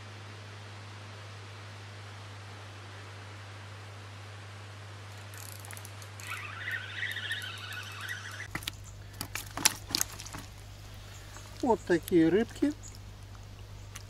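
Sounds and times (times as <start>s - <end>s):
steady hiss and low hum: 0.0s - 14.0s
birds chirping: 5.6s - 14.0s.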